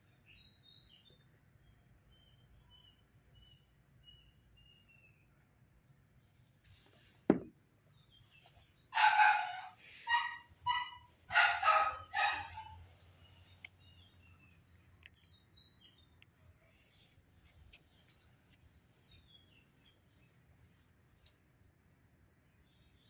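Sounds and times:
faint bird chirps: 0.0 - 5.4.

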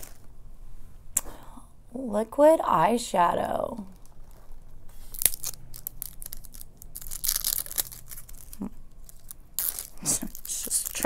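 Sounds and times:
packaging crinkling: 0.0 - 0.3, 3.9 - 11.0.

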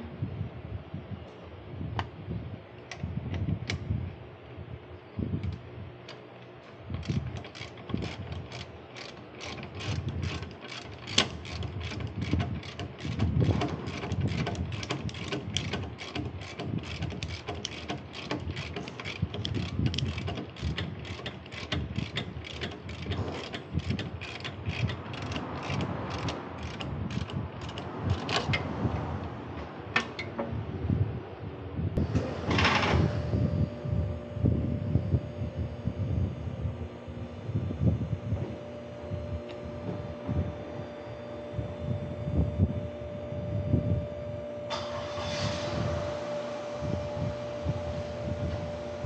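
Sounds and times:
ratchet wrench clicking: 7.0 - 28.6.

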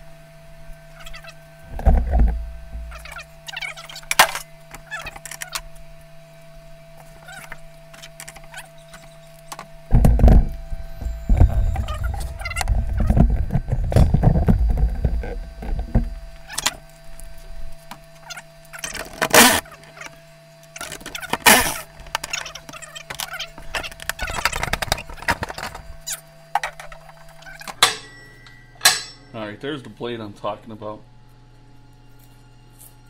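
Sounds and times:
faint steady hum: 0.0 - 33.0
metal tools clinking: 27.7 - 29.5
impact driver hammering: 27.8 - 29.3.

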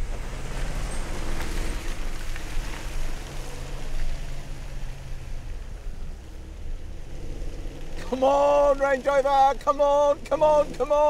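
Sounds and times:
engines accelerating under load: 0.0 - 11.0
tyres churning through wet mud: 0.0 - 11.0.

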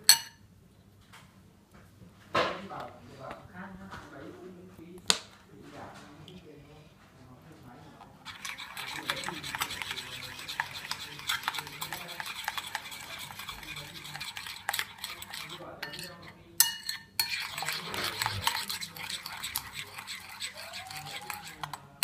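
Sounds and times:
metal spoon stirring in china bowl: 0.0 - 0.4, 8.0 - 22.0.

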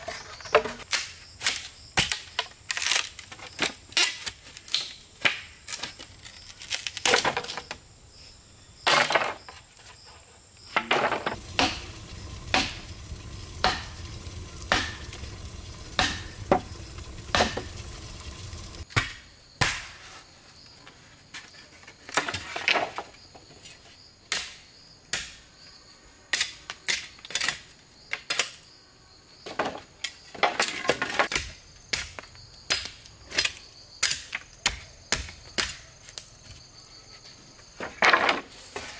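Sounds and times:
bamboo poles clattering: 0.0 - 7.8, 8.8 - 9.6, 10.8 - 13.8, 21.8 - 23.1, 29.5 - 31.5, 37.8 - 38.9
insects trilling: 4.9 - 19.6, 22.8 - 38.9.

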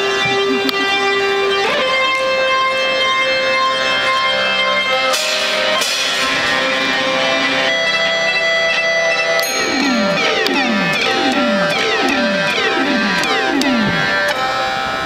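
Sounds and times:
accordion music: 0.0 - 2.2, 9.4 - 15.0.

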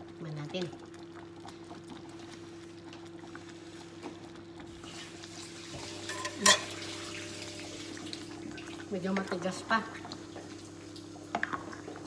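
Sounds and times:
spoon stirring a pot: 5.7 - 6.9
utensil clinking on pot: 6.0 - 6.9.

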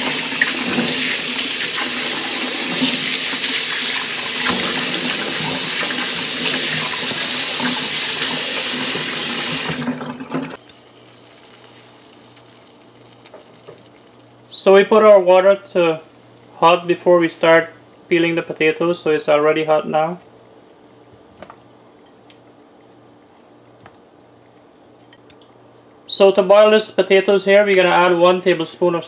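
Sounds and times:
faucet water running: 0.0 - 14.2
faint steady hum: 0.0 - 29.0.

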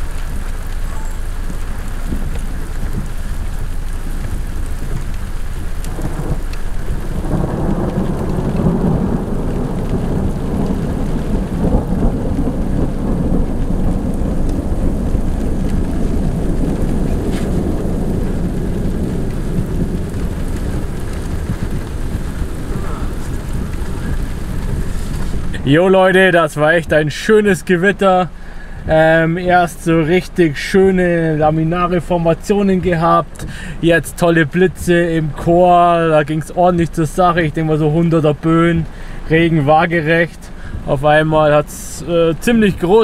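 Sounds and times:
rumbling thunder: 0.0 - 27.0
steady rain: 0.0 - 43.0.

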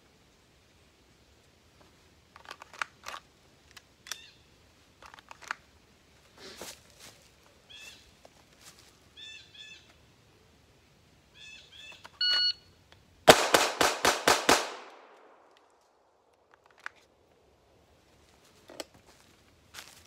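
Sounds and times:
bird chirps: 9.2 - 10.0, 11.3 - 12.8
shot timer beep: 12.2 - 12.6.

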